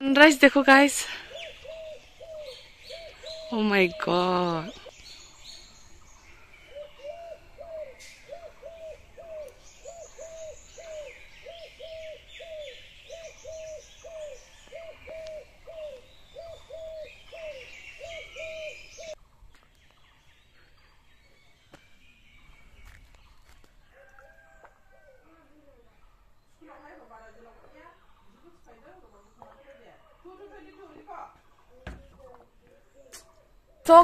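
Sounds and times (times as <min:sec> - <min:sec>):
small birds chirping: 0:00.0 - 0:34.0
bird hooting low: 0:01.2 - 0:04.9, 0:06.7 - 0:19.2.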